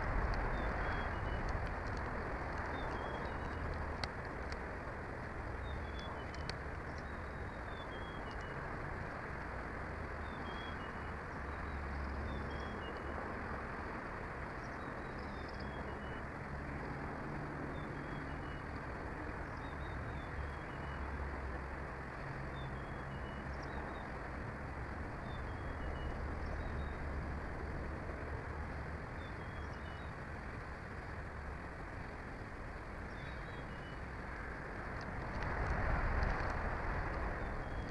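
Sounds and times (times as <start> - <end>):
steady rushing background noise: 0.0 - 37.9
small songbird singing: 2.7 - 3.7, 5.6 - 8.6, 10.2 - 13.2, 14.5 - 16.3, 17.7 - 18.7, 19.4 - 21.1, 22.5 - 24.1, 25.2 - 27.0, 29.2 - 30.2, 33.0 - 34.0.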